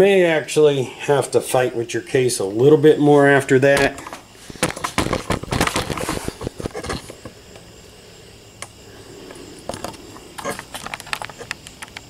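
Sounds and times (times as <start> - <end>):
small clicks and knocks: 9.7 - 12.0.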